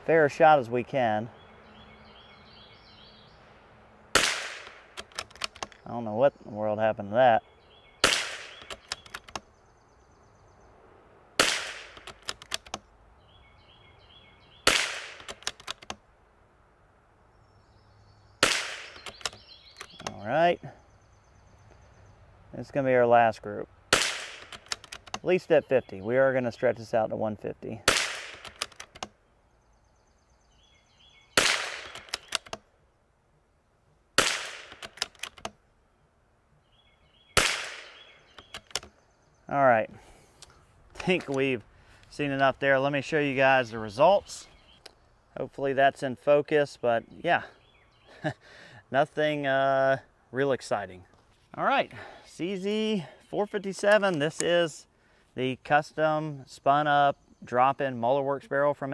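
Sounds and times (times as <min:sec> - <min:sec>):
rifle shots: 0:04.1 - 0:04.9, 0:08.0 - 0:08.7, 0:11.4 - 0:12.1, 0:14.6 - 0:15.3, 0:18.4 - 0:19.1, 0:23.9 - 0:24.7, 0:27.9 - 0:28.7, 0:31.4 - 0:32.4, 0:34.2 - 0:34.9, 0:37.4 - 0:38.0
rifle bolt clicks: 0:04.2 - 0:05.8, 0:08.0 - 0:09.5, 0:11.4 - 0:12.8, 0:14.7 - 0:16.0, 0:18.7 - 0:20.2, 0:24.0 - 0:25.2, 0:27.9 - 0:29.2, 0:31.4 - 0:32.6, 0:34.2 - 0:35.6, 0:37.4 - 0:38.9.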